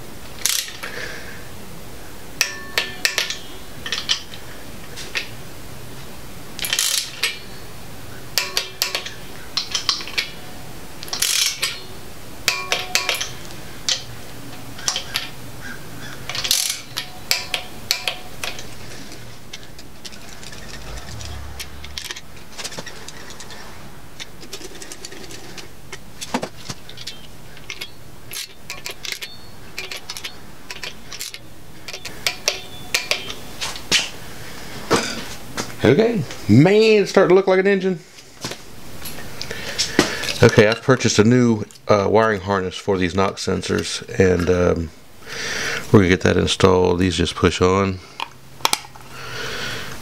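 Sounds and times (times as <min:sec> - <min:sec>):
socket ratchet clicking: 0:00.4 - 0:00.9, 0:06.6 - 0:07.4, 0:11.0 - 0:11.9, 0:16.3 - 0:20.2, 0:26.9 - 0:33.4
metal tools clinking: 0:02.4 - 0:04.4, 0:06.6 - 0:07.6, 0:08.4 - 0:10.4, 0:11.0 - 0:15.4, 0:16.3 - 0:33.9.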